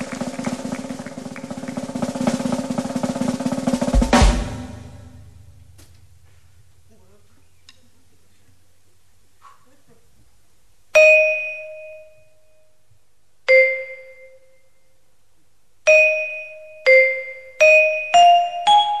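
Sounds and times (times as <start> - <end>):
piano notes ringing: 15.9 - 19.0.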